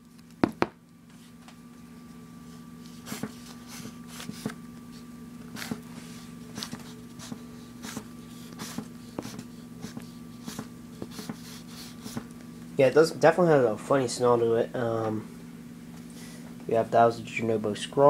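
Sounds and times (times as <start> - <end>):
steady low hum: 0.0 - 18.0
marker scraping across paper: 2.8 - 12.3.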